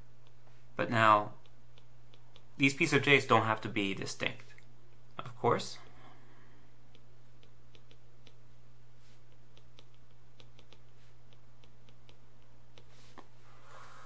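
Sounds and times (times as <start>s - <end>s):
steady low hum: 0.0s - 14.0s
stylus clicking on tablet screen: 1.4s - 2.6s, 6.9s - 8.5s, 9.2s - 13.3s.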